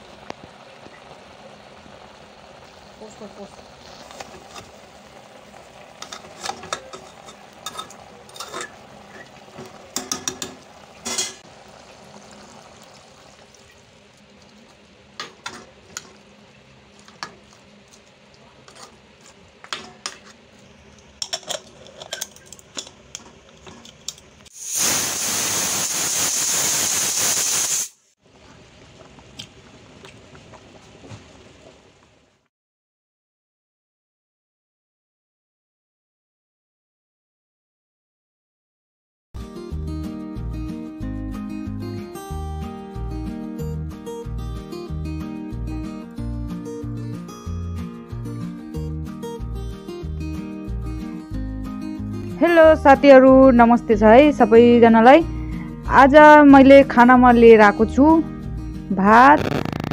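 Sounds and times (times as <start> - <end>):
curry bubbling: 0.0 - 24.9, 28.3 - 32.4
ladle scraping metal pot: 3.9 - 4.8, 6.0 - 11.4, 15.2 - 16.2, 18.6 - 20.5, 21.2 - 24.3
ladle clinking on pot: 6.0 - 11.4, 21.2 - 24.2
loud hiss: 24.5 - 28.2, 59.4 - 59.9.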